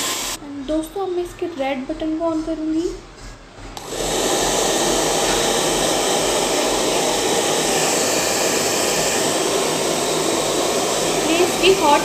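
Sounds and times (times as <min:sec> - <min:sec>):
hair dryer blowing: 0:00.0 - 0:00.4, 0:03.8 - 0:12.0.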